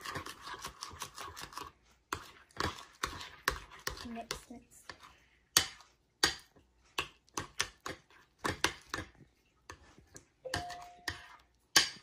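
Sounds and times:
metal spoon scraping a bowl: 0:00.0 - 0:05.8, 0:10.5 - 0:12.0.

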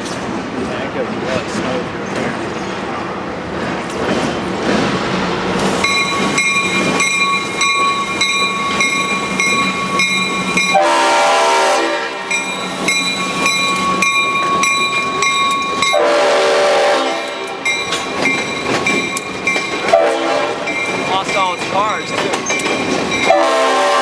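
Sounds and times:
locomotive bell ringing: 0:05.8 - 0:24.0
locomotive horn blast: 0:10.7 - 0:12.4, 0:15.9 - 0:17.6, 0:19.9 - 0:20.7, 0:23.3 - 0:24.0.

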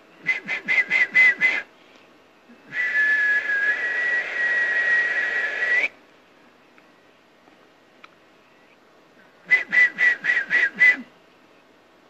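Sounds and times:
man whistling high breathy note: 0:00.2 - 0:01.8, 0:02.5 - 0:06.0, 0:09.4 - 0:11.1.

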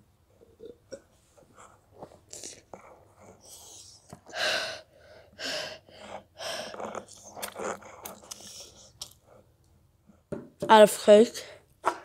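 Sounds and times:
heavy gasping breaths: 0:03.3 - 0:07.2.

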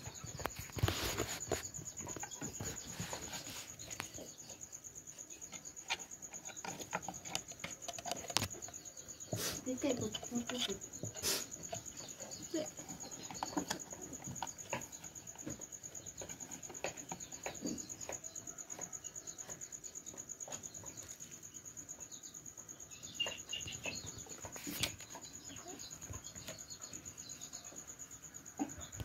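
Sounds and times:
cricket trilling: 0:00.0 - 0:29.0
cats scuffing and tapping: 0:05.4 - 0:21.3.

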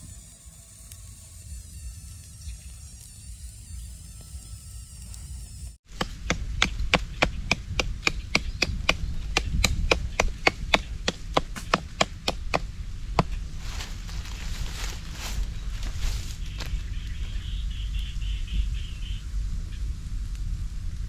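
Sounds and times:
knife chopping wooden stick: 0:05.9 - 0:13.4.

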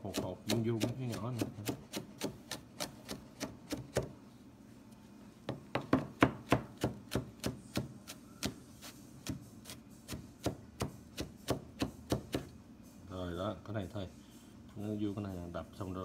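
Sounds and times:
knife chopping on plastic board: 0:00.0 - 0:04.2, 0:05.5 - 0:08.6, 0:09.2 - 0:12.6.

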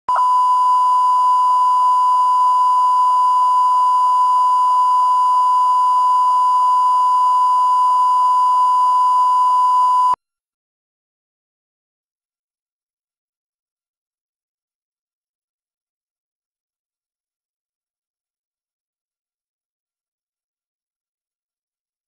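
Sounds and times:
steady test tone beep: 0:00.1 - 0:10.2.

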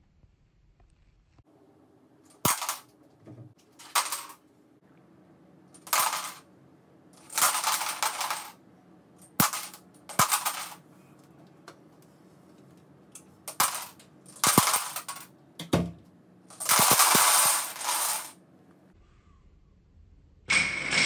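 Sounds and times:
plastic blocks clattering: 0:02.3 - 0:02.9, 0:03.8 - 0:04.4, 0:05.8 - 0:06.4, 0:07.2 - 0:08.6, 0:09.2 - 0:10.8, 0:13.5 - 0:15.9, 0:16.5 - 0:18.4.

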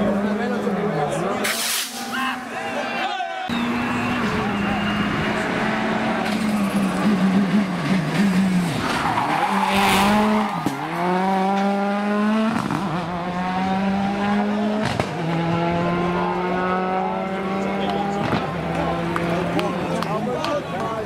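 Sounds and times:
rally car engine revving: 0:03.5 - 0:20.2.

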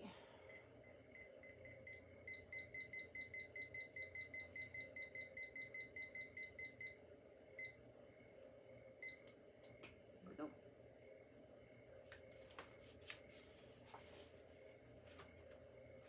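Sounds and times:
digital timer beeping: 0:00.5 - 0:07.0.

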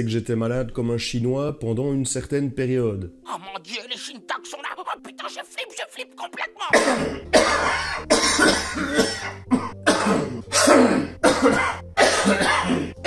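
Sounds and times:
man coughing: 0:06.3 - 0:13.0.

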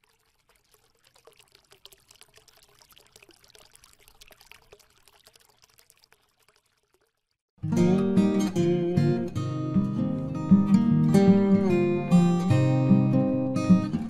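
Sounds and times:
faint crackling and trickling: 0:00.0 - 0:07.5.

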